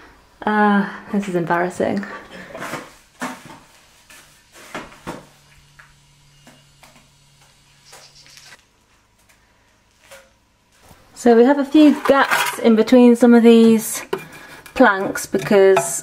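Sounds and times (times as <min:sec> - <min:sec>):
low steady hum: 0:03.8 - 0:16.0
mortar scraping in plastic bucket: 0:11.7 - 0:12.8, 0:13.5 - 0:16.0.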